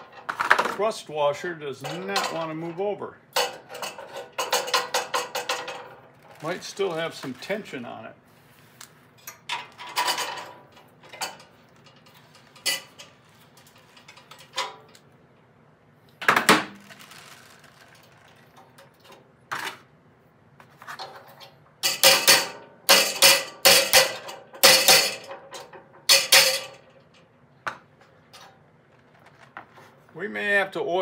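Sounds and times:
steel tools clinking: 1.7 - 2.8, 3.4 - 7.8, 9.2 - 15.0, 21.4 - 27.2
hammer striking steel: 21.9 - 25.3.

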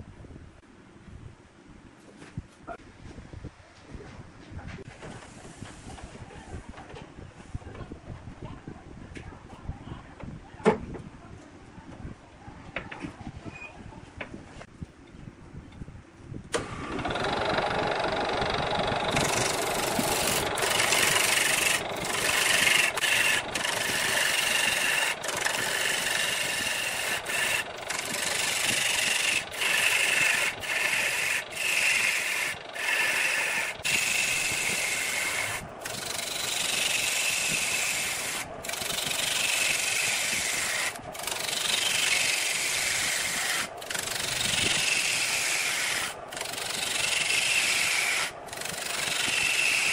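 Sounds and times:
lathe tool scraping wood: 16.6 - 49.9.

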